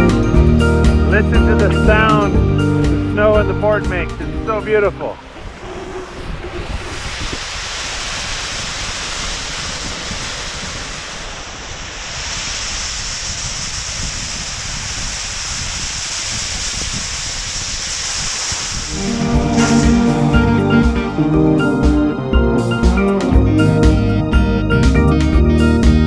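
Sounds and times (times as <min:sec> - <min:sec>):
wind buffeting microphone: 0:01.9 - 0:23.1
snowboard hissing on slush: 0:05.1 - 0:20.0.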